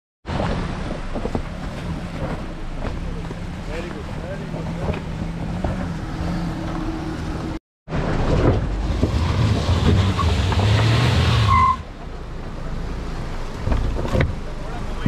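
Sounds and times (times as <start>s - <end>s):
tyres grinding on gravel: 0.3s - 6.9s
vehicle engine at low speed: 0.3s - 15.0s.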